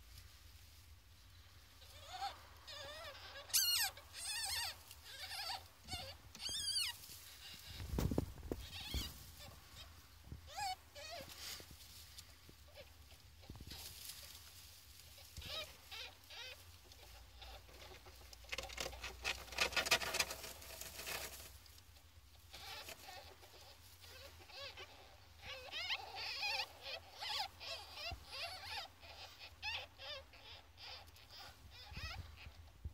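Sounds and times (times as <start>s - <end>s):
ferret kits squeaking: 1.8s - 11.5s, 15.1s - 21.4s, 22.5s - 32.6s.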